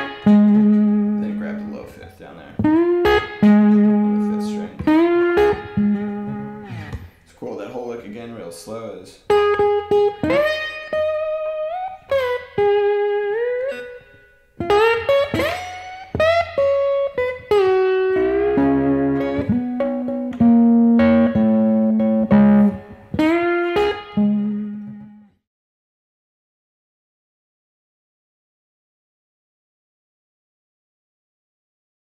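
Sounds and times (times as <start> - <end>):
slide electric guitar blues lick: 0.0 - 7.2, 9.3 - 25.3.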